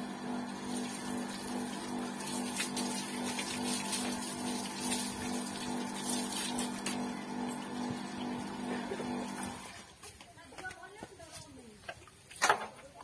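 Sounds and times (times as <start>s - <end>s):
water rushing from hose: 0.0s - 10.0s
electric water pump humming: 0.0s - 10.1s.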